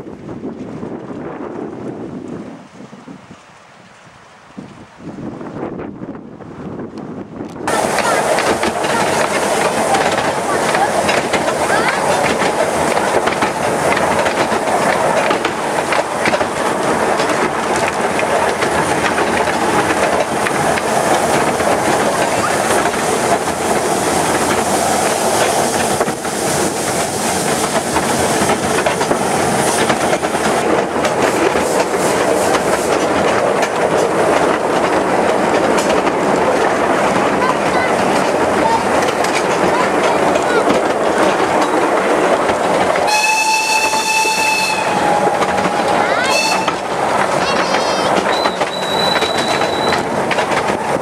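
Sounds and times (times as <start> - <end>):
train wheels rattling on rails: 7.4 - 51.0.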